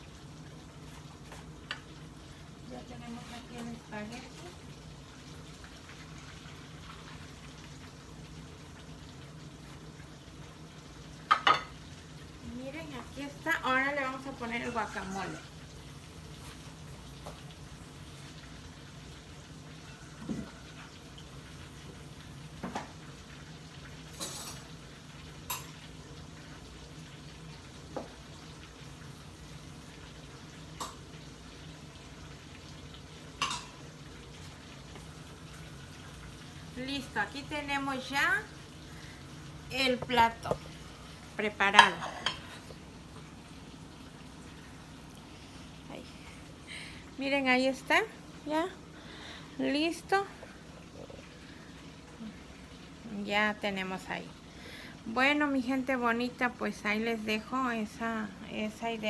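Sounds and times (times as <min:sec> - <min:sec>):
chicken sizzling in oil: 0:00.0 - 0:59.0
faint steady hiss: 0:00.0 - 0:59.0.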